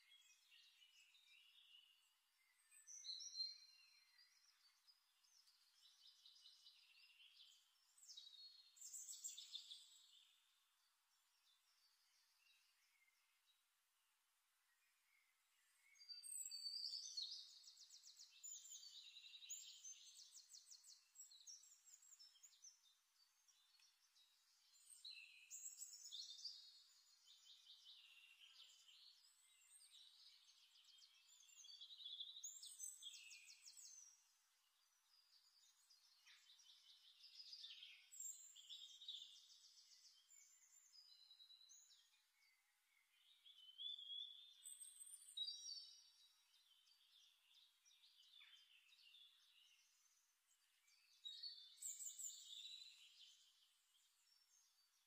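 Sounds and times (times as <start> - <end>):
songbird trilling and chirping: 15.8 - 55.0.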